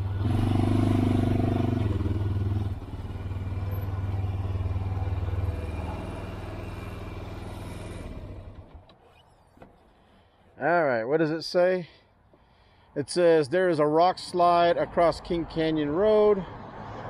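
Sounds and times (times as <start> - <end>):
quad engine slowing to idle: 0.0 - 9.7.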